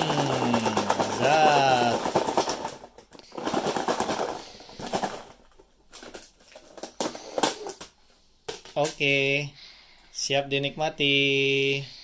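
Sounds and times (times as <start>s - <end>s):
food rattling in plastic container: 0.0s - 7.9s
plastic container clicks: 0.0s - 7.9s.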